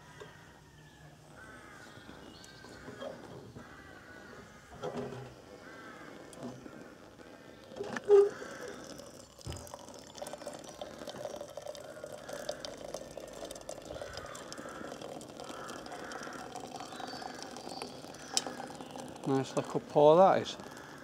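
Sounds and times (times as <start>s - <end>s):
water pouring into a flask: 6.9s - 21.0s.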